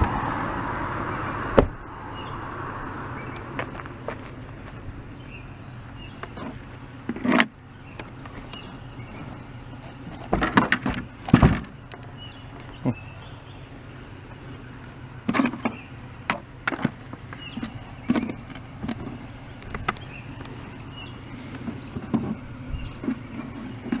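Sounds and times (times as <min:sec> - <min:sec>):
steady low hum: 0:00.0 - 0:24.0
objects knocking on wooden boxes: 0:10.1 - 0:11.8.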